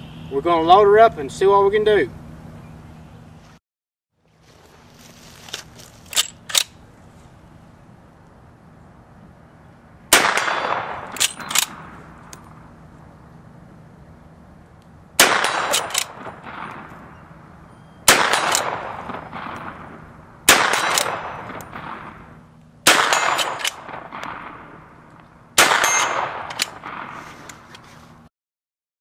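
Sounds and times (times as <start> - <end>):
rifle shots echoing: 10.1 - 12.3, 15.2 - 27.5.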